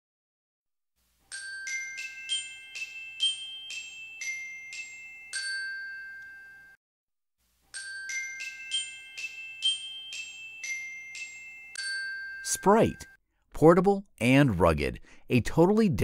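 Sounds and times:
glockenspiel jingle: 0:01.3 - 0:06.8, 0:07.7 - 0:13.2.

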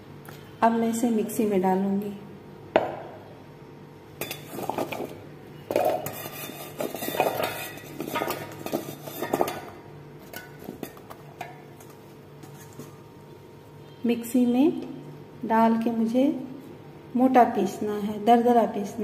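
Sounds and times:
carrot slices clattering in metal jar: 0:05.7 - 0:11.2.

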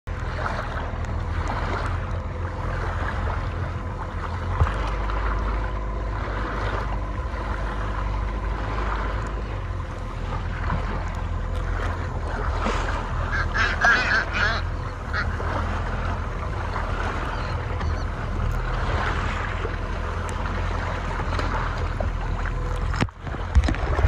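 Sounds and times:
low rumble of wind and water: 0:00.0 - 0:24.0
seabirds calling: 0:00.7 - 0:22.9.

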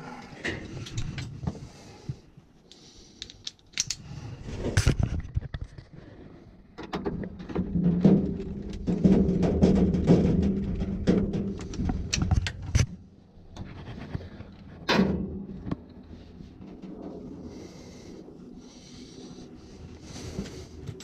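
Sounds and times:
steady low hum: 0:07.5 - 0:21.0.

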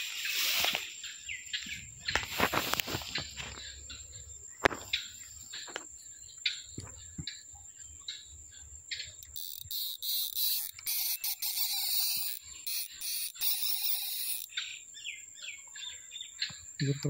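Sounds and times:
high hiss in bursts: 0:00.0 - 0:00.9
bird chirps: 0:00.0 - 0:17.0
insect chorus trilling: 0:00.0 - 0:17.0.

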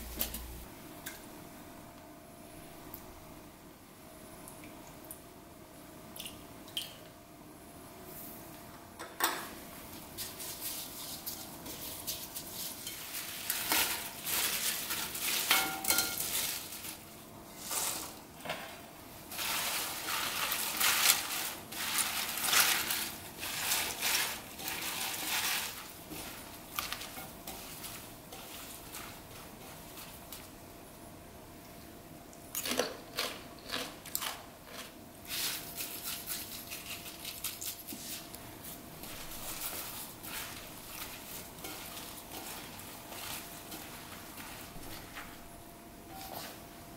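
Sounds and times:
cabbage leaves rustling in a bowl: 0:09.9 - 0:18.2, 0:19.2 - 0:30.7, 0:34.7 - 0:46.7.

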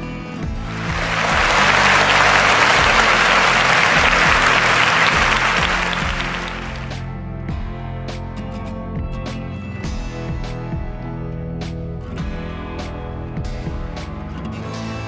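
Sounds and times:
background music: 0:00.4 - 0:07.0
audience applause: 0:00.6 - 0:07.0.

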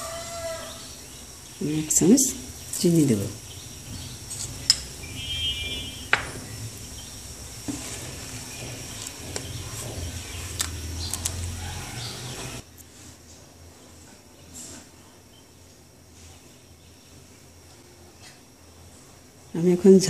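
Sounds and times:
spatula scraping metal pot: 0:07.6 - 0:10.6.

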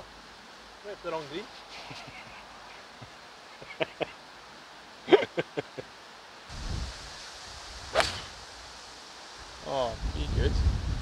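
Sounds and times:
wind on microphone: 0:06.5 - 0:08.6, 0:09.5 - 0:11.0
golf club striking ball: 0:07.9 - 0:08.4.

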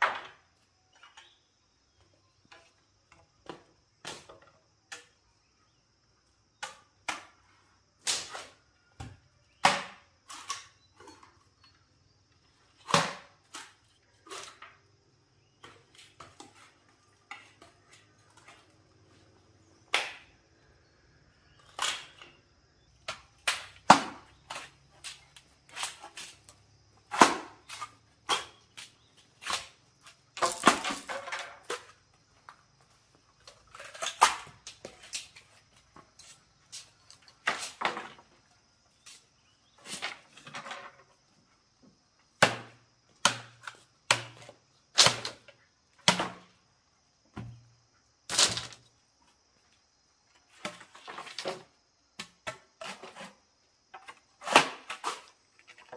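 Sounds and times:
sharp chopping knocks: 0:42.4 - 0:43.5.

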